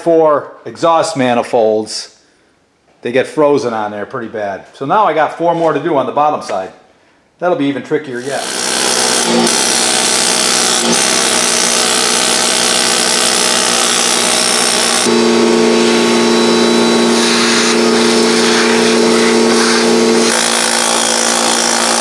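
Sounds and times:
steady hum: 15.1 - 20.4.

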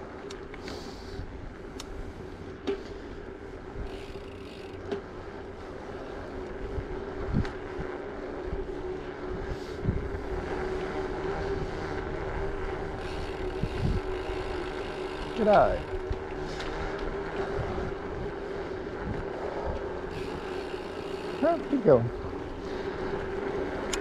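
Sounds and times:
wind on microphone: 6.6 - 10.6, 11.3 - 14.6, 15.9 - 20.6
tyres rolling on concrete: 10.2 - 24.0.

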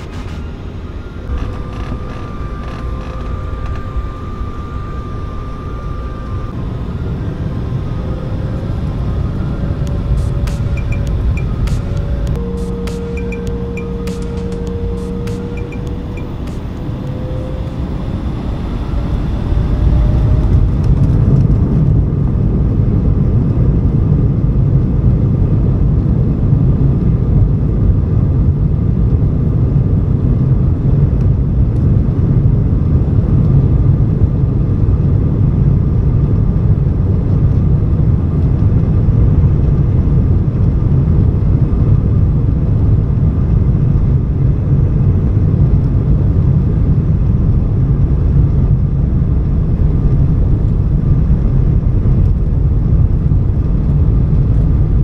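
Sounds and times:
jet engines roaring: 0.0 - 25.0
faint rising engine whine: 0.0 - 55.0.

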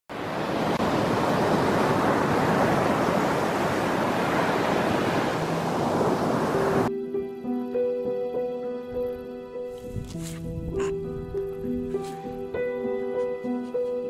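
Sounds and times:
small waves washing on rocky shore: 0.2 - 6.9.

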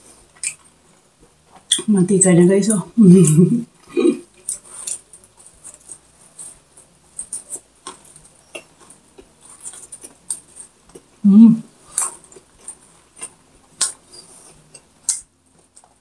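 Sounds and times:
crunchy chewing: 0.0 - 1.9, 3.7 - 16.0
person humming: 3.0 - 4.2, 11.2 - 11.7.

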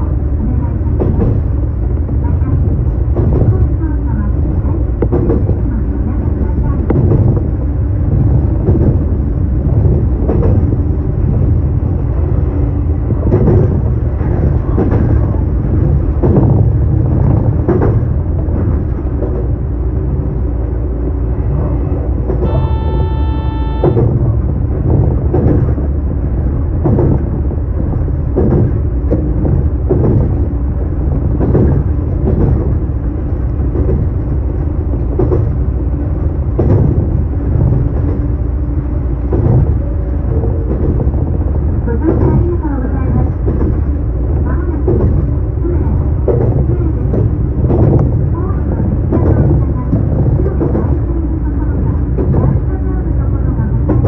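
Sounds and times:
train running on track: 0.0 - 54.0
wheels knocking on rails: 4.4 - 5.8, 6.4 - 12.2, 13.0 - 19.6, 22.2 - 38.4, 39.2 - 51.1
steady high tone: 22.4 - 24.1.

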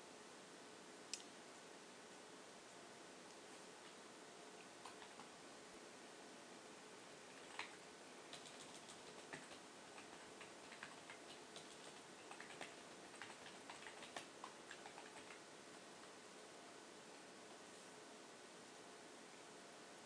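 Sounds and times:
low steady hiss: 0.0 - 20.0
keyboard typing: 4.8 - 5.3, 7.3 - 16.2.

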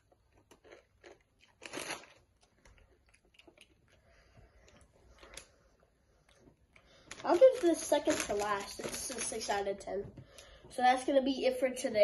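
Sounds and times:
potato chips crunching: 0.0 - 4.0, 7.0 - 9.6
foil chip bag crinkling: 0.4 - 3.7, 6.9 - 9.8.

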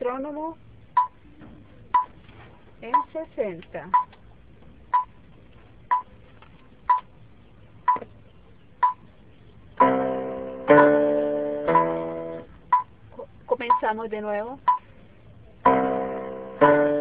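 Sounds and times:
metronome ticking: 3.0 - 3.2, 9.8 - 12.9, 13.6 - 14.0
electronic keyboard notes: 9.8 - 12.8, 15.6 - 17.0.

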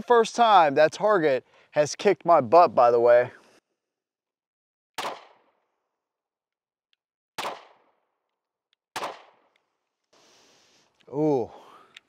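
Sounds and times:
pistol shots: 5.0 - 5.6, 7.4 - 8.0, 8.9 - 9.6.

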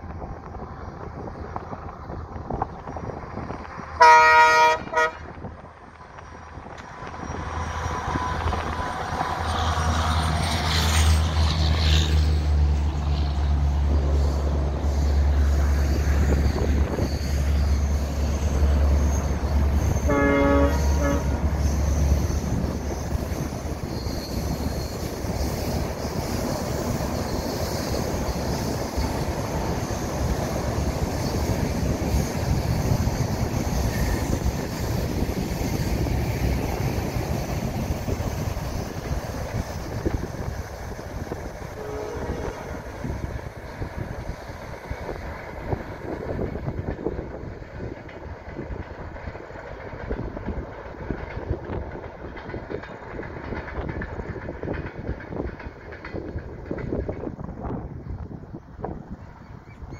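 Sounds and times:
diesel locomotive engine droning: 0.0 - 59.9
train coaches rolling on rails: 0.0 - 59.9
train horn blast: 4.0 - 5.4, 20.0 - 21.6, 41.7 - 42.9.

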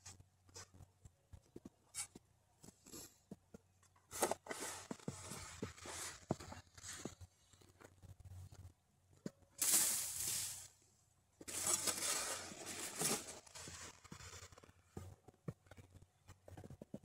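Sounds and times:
snow shovel scraping: 4.1 - 7.1, 9.6 - 10.7, 11.5 - 14.1.

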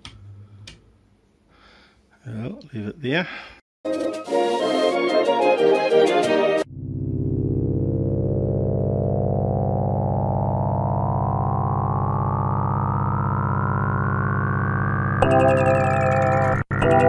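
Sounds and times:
tone gliding upward in pitch: 4.7 - 17.0
synthesizer drone: 6.6 - 17.0.

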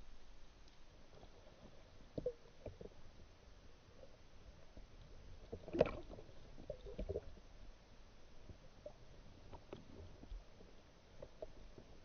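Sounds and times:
sea water sloshing and lapping: 4.0 - 7.6.

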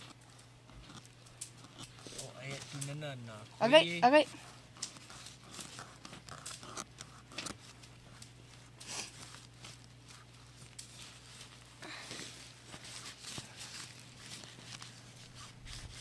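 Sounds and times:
low steady hum: 0.0 - 16.0
soft clicks and rustles: 4.7 - 16.0.

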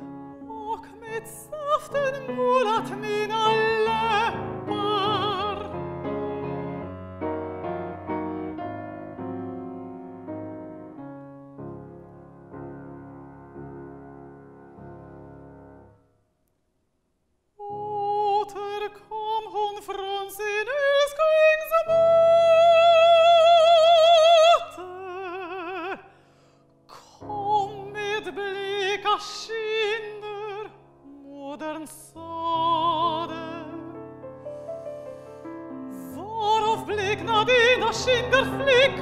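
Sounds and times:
woman singing with vibrato: 0.0 - 5.8, 17.6 - 26.0, 26.9 - 34.0, 35.9 - 39.0
grand piano accompaniment: 0.0 - 16.2, 17.7 - 39.0.

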